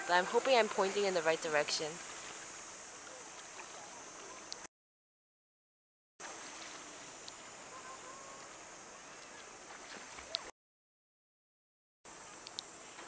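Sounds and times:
faint shoreline hiss: 0:00.0 - 0:04.7, 0:06.2 - 0:10.5, 0:12.1 - 0:13.0.

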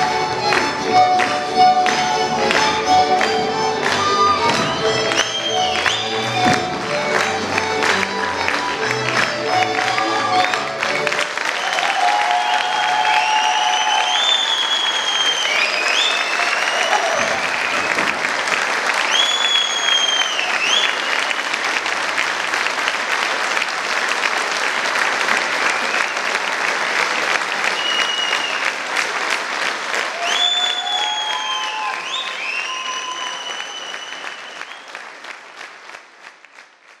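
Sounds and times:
audience clapping: 0:00.0 - 0:37.0
high falling whistles: 0:13.2 - 0:17.0.

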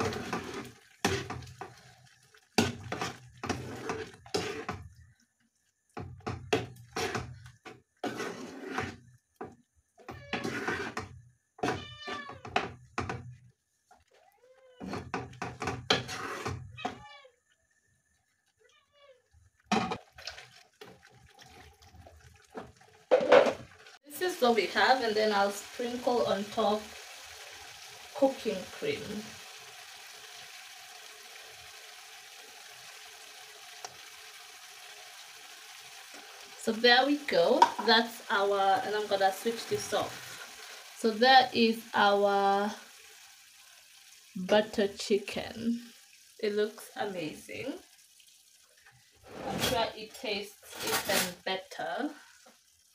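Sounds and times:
spatula scraping wet sauce: 0:00.0 - 0:05.0, 0:05.9 - 0:12.5, 0:14.8 - 0:17.0
sauce simmering in a pan: 0:00.0 - 0:52.9.

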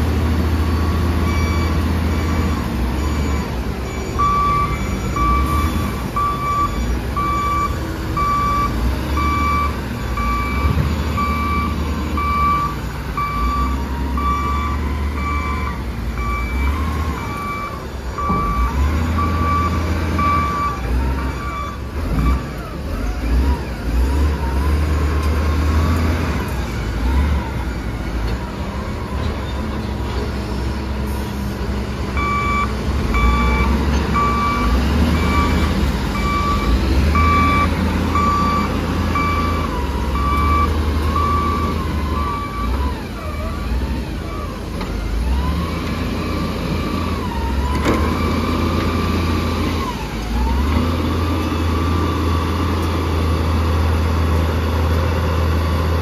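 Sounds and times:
diesel engines droning: 0:00.0 - 0:56.0
reversing alarm beeping: 0:00.6 - 0:22.6, 0:32.2 - 0:44.7.

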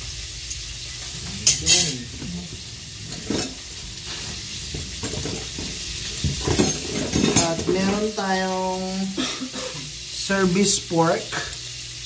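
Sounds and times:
steady hiss: 0:00.0 - 0:12.0
metal serving utensils clattering: 0:00.9 - 0:08.3.

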